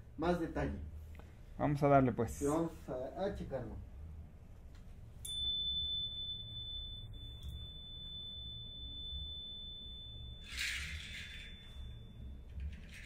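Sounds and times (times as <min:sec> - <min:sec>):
faint low rumble: 0:00.0 - 0:13.0
high-pitched pure tone: 0:05.2 - 0:12.6.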